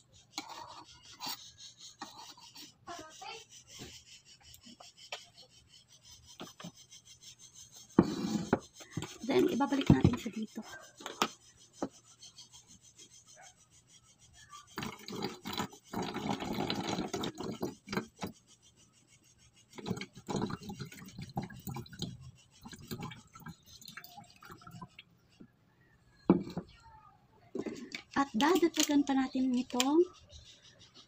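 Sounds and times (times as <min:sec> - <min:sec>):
water pouring into bottle: 0:14.8 - 0:18.0, 0:19.8 - 0:25.0.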